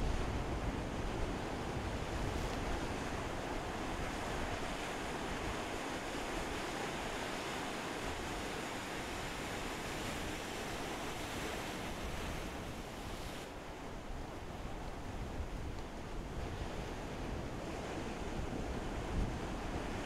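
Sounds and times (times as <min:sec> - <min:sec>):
low wind rumble: 0:00.0 - 0:06.6
waves breaking on beach: 0:00.0 - 0:20.0.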